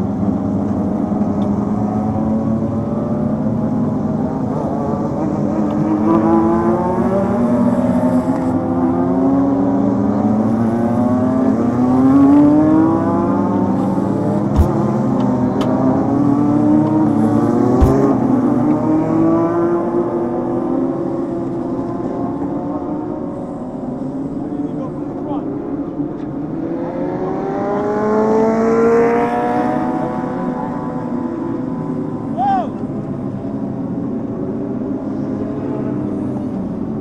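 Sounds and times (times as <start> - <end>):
race car engine running hard: 0.0 - 37.0
sharp knocks: 14.6 - 14.8, 17.8 - 18.1.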